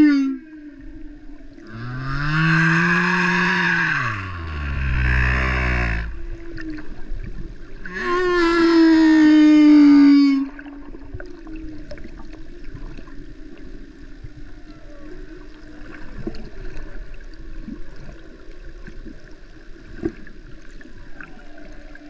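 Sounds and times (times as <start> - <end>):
whale song moans: 0.0 - 13.3, 14.4 - 17.2
steady low tone: 0.0 - 22.0
underwater water noise: 0.0 - 22.0.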